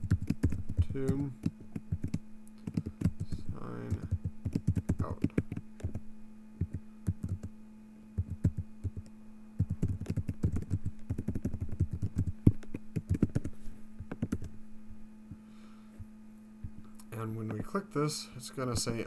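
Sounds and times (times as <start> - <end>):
computer keyboard typing: 0.0 - 6.0, 6.6 - 7.5, 8.2 - 13.5, 14.1 - 14.5.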